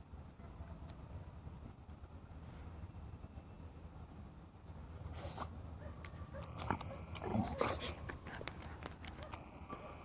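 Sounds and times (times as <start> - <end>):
dog sniffing in grass: 5.1 - 5.6.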